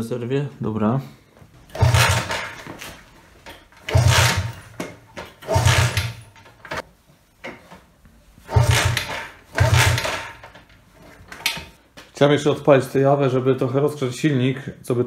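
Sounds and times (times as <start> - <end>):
motorcycle kick-start engine turning over: 1.7 - 2.7, 3.8 - 6.8, 8.5 - 10.6.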